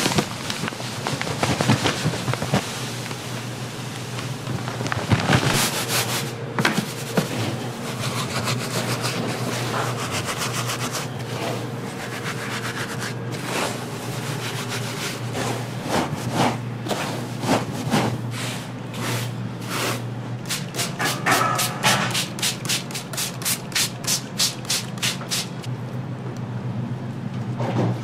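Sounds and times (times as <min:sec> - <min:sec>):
steady low hum: 0:00.0 - 0:28.0
spray bottle spritzing: 0:20.5 - 0:25.7.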